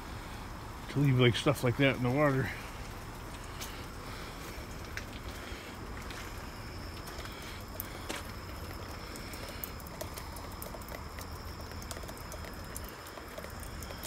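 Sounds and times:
steady hiss: 0:00.0 - 0:14.0
light ticks and pattering: 0:00.8 - 0:14.0.

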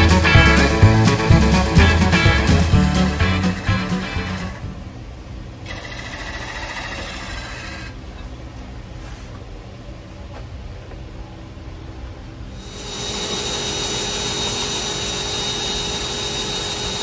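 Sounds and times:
gouge cutting spinning wood: 0:00.0 - 0:04.6, 0:05.7 - 0:08.0, 0:12.6 - 0:17.0
background music: 0:00.0 - 0:04.9
wood lathe motor hum: 0:05.7 - 0:08.0, 0:12.6 - 0:17.0.

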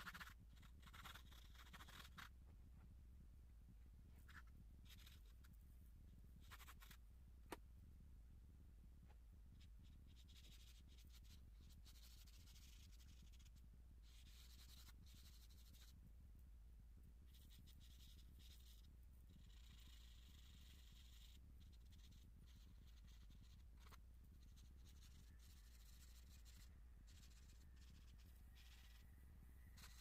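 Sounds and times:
pencil scratching on paper: 0:00.0 - 0:02.4, 0:04.2 - 0:05.5, 0:06.4 - 0:07.0, 0:09.6 - 0:16.0, 0:17.3 - 0:30.0
low steady hum: 0:00.0 - 0:30.0.

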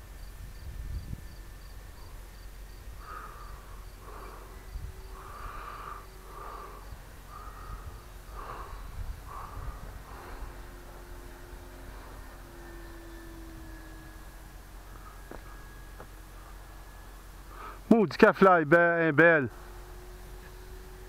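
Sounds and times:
wind rumble on microphone: 0:00.0 - 0:16.8
bird harsh call: 0:03.0 - 0:14.3.

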